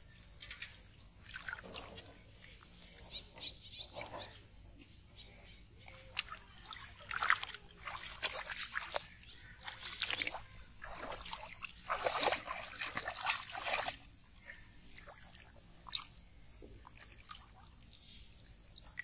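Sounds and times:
hands splashing in shallow water: 0:00.4 - 0:02.1, 0:05.9 - 0:16.2.

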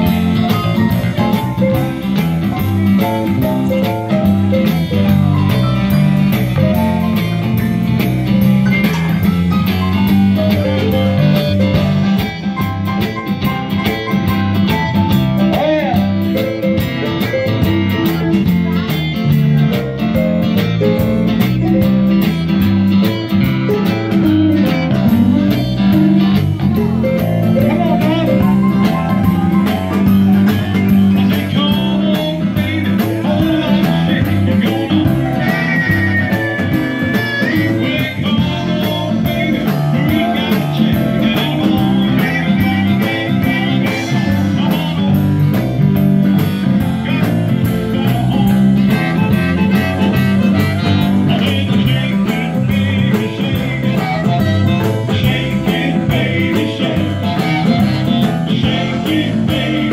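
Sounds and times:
live blues band playing: 0:00.0 - 0:59.9
harmonica: 0:20.3 - 0:45.4, 0:46.0 - 0:59.9.

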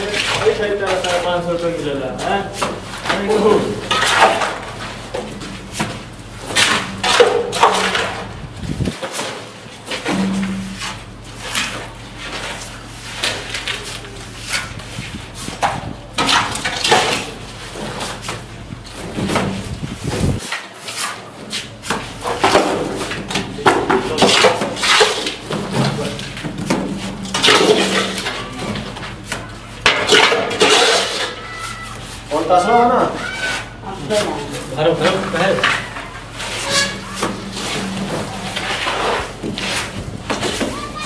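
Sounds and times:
steady low hum: 0:00.0 - 0:20.5
trowels scraping mortar: 0:30.1 - 0:32.3, 0:33.6 - 0:41.0.

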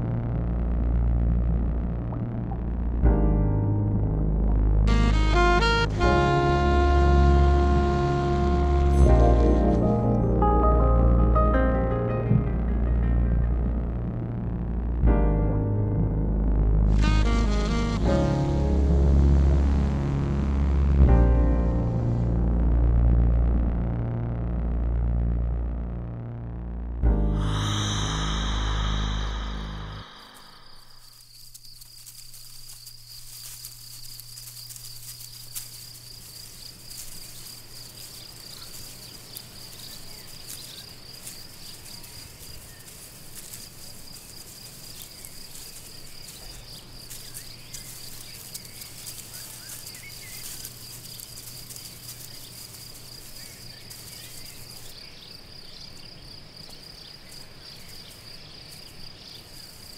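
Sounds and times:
low hum: 0:00.0 - 0:31.2
insect high-pitched trill: 0:27.4 - 0:59.9.

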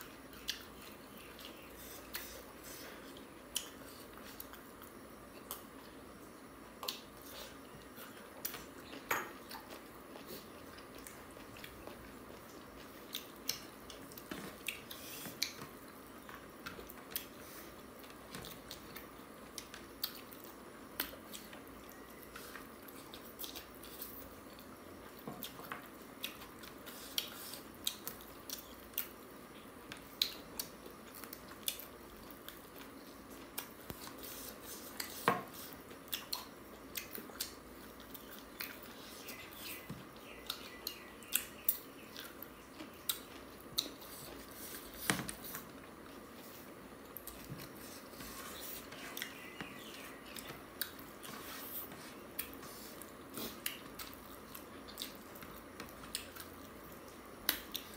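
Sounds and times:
chewing and mouth smacks: 0:35.9 - 0:39.1, 0:39.8 - 0:44.5, 0:50.3 - 0:57.9.

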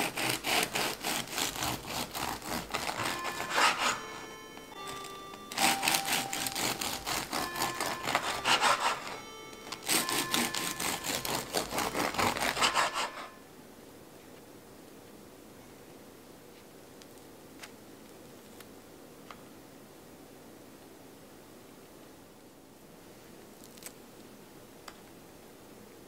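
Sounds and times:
rapid scraping strokes: 0:00.0 - 0:04.0, 0:09.9 - 0:13.3
soft background music: 0:02.1 - 0:13.4.

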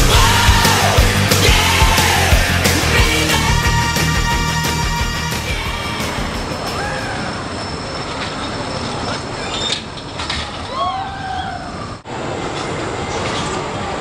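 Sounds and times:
high squeals or yells: 0:00.0 - 0:07.9, 0:10.6 - 0:12.0
roller coaster rumble: 0:00.0 - 0:14.0.

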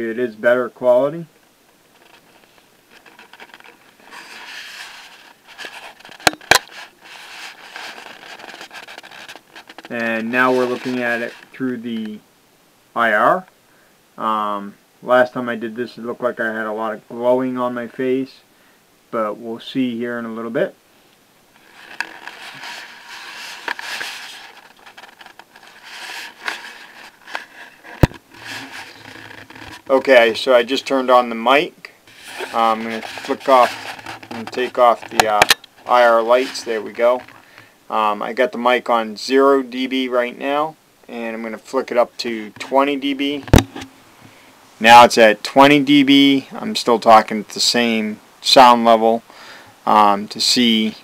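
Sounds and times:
soft rubbing on camcorder: 0:01.8 - 0:12.0, 0:21.5 - 0:31.4, 0:32.0 - 0:37.5.

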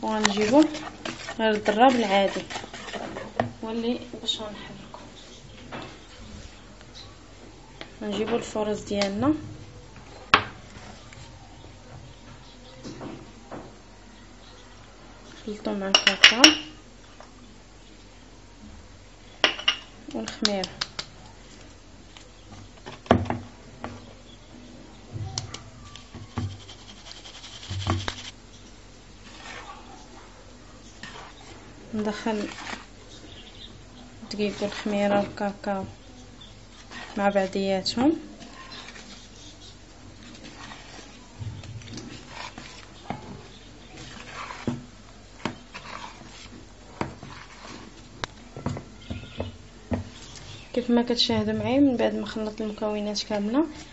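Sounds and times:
flour sifting through sieve: 0:00.0 - 0:03.6, 0:26.2 - 0:28.4, 0:29.2 - 0:30.2, 0:30.9 - 0:33.0, 0:34.2 - 0:36.0, 0:36.6 - 0:48.2
whisk swishing in batter: 0:00.2 - 0:03.4, 0:26.3 - 0:28.4, 0:29.2 - 0:30.2, 0:30.9 - 0:33.0, 0:36.7 - 0:37.6, 0:38.3 - 0:48.1.

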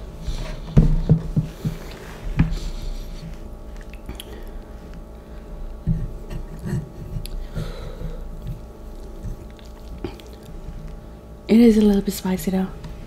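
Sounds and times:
person chewing: 0:03.0 - 0:11.1.

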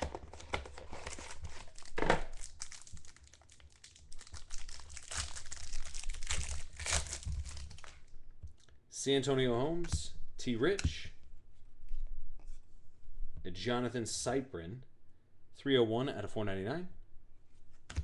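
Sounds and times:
plastic wrapper crinkling and tearing: 0:00.0 - 0:08.2.

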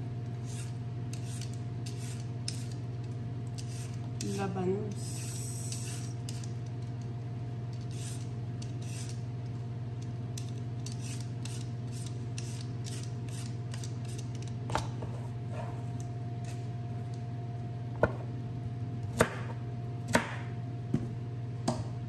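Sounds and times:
steady low hum: 0:00.0 - 0:22.0
vegetable peeler scraping radish: 0:00.4 - 0:02.8, 0:03.6 - 0:06.6, 0:07.8 - 0:09.2, 0:10.4 - 0:14.5.

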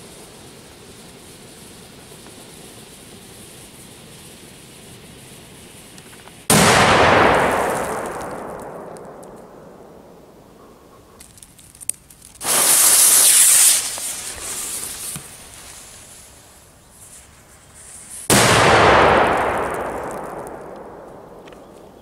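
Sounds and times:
firecracker bang: 0:06.1 - 0:10.5, 0:12.4 - 0:16.3, 0:17.9 - 0:22.0.

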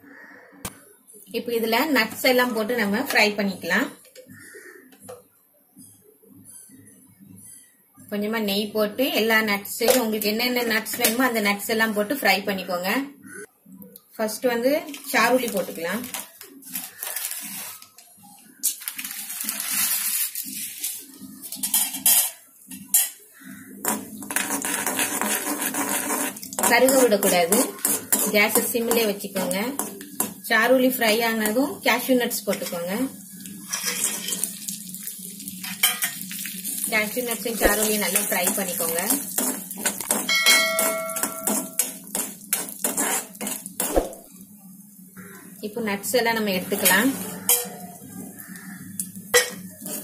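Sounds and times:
spoon scraping metal pan: 0:23.8 - 0:30.4, 0:33.6 - 0:34.5, 0:37.0 - 0:44.0, 0:49.4 - 0:50.0
metallic ringing tone: 0:40.3 - 0:41.9.

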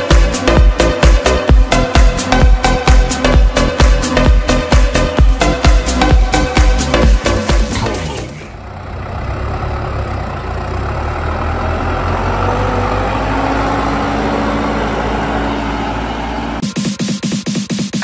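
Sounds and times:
dance music: 0:00.0 - 0:08.4, 0:16.6 - 0:18.0
tractor diesel engine: 0:00.0 - 0:18.0.

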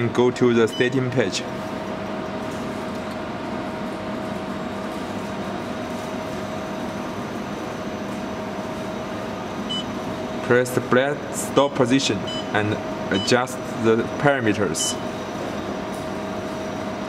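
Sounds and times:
packing machine whirring hum: 0:00.0 - 0:17.0.

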